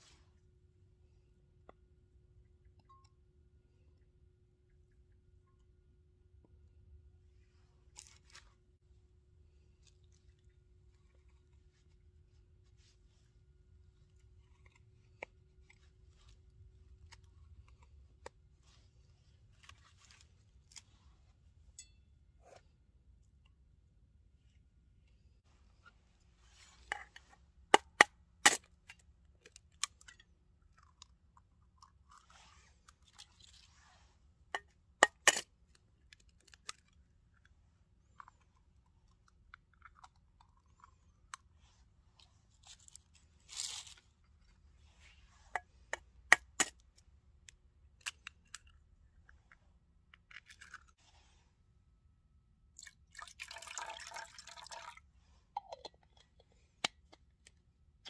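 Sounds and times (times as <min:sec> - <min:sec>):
liquid pouring into cup: 0:52.8 - 0:55.9.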